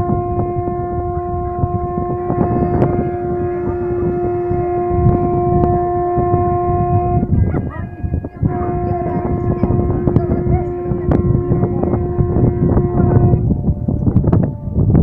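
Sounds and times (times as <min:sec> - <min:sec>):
boat horn long note: 0:00.0 - 0:15.0
rough low rumble: 0:00.0 - 0:15.0.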